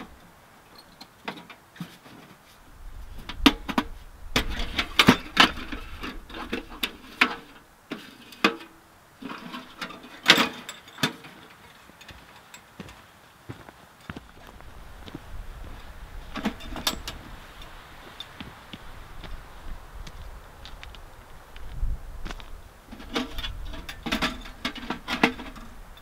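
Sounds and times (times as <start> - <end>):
metal stove parts clanking: 3.3 - 12.7, 16.3 - 17.2, 23.0 - 25.8.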